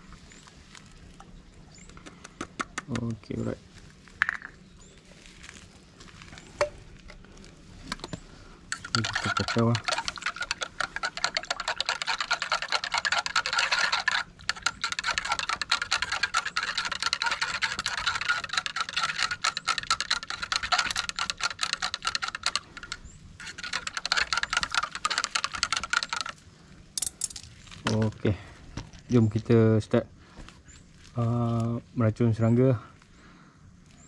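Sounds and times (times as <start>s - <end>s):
rod clattering in plastic bottle: 7.9s - 26.4s.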